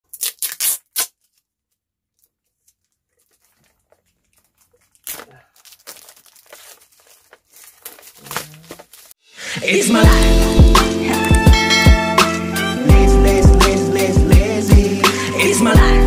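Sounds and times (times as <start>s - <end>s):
packaging ripping: 0.1s - 1.5s, 2.2s - 9.2s
packaging crinkling: 0.1s - 9.2s.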